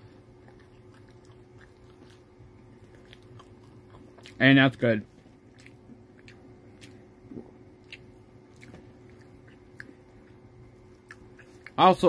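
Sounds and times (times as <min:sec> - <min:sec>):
person chewing food: 0:00.0 - 0:11.8
low steady hum: 0:00.0 - 0:12.0
mouth clicks and smacks: 0:05.5 - 0:10.0, 0:11.0 - 0:11.8.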